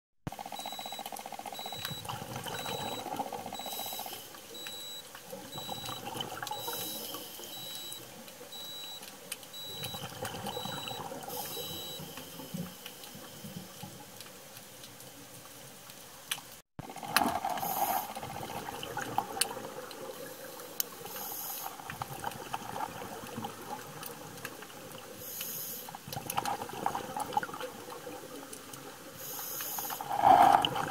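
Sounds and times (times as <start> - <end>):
high electronic beep: 0.6 - 1.0, 1.6 - 2.0, 2.6 - 3.0, 3.6 - 5.0, 5.6 - 6.0, 6.6 - 8.0, 8.6 - 9.0, 9.6 - 12.0
exhaust bubbles bursting: 1.6 - 3.6, 30.0 - 30.9
regulator inhalation hiss: 20.5 - 21.7, 25.2 - 26.0, 29.2 - 30.0.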